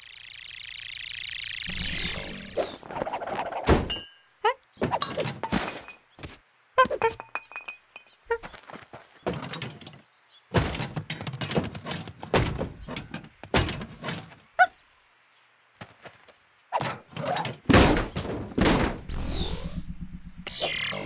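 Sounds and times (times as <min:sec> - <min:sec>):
cartoon knocks and thuds: 0:10.5 - 0:14.4, 0:16.8 - 0:20.3
low hum: 0:18.8 - 0:21.0
falling electronic sweep: 0:19.1 - 0:21.0.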